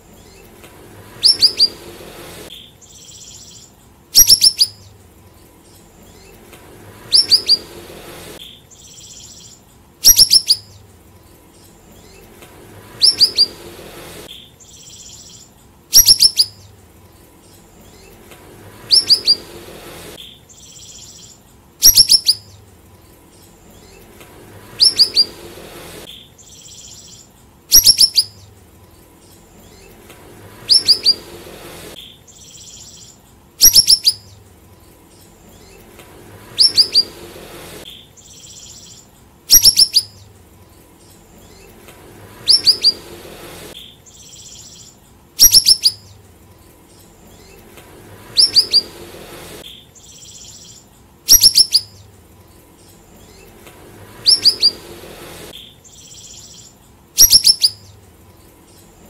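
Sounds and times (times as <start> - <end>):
songbird whistling phrases: 1.1 - 2.0, 3.0 - 4.8, 7.0 - 7.8, 8.4 - 10.8, 14.8 - 16.7, 18.8 - 19.6, 20.6 - 22.6, 24.7 - 25.5, 26.5 - 28.4, 30.6 - 31.4, 32.4 - 34.3, 38.4 - 40.2, 42.4 - 43.2, 48.3 - 49.0, 50.1 - 52.0, 54.2 - 55.0.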